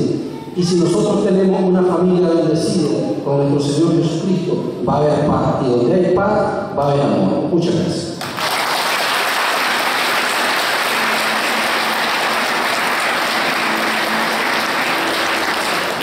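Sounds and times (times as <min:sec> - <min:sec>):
audience applauding: 0:08.2 - 0:16.0.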